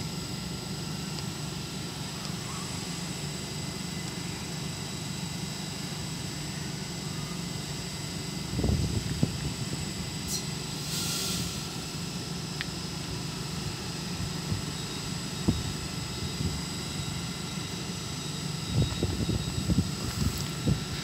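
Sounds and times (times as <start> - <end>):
train equipment humming: 0.0 - 21.0
air hiss: 10.3 - 11.9.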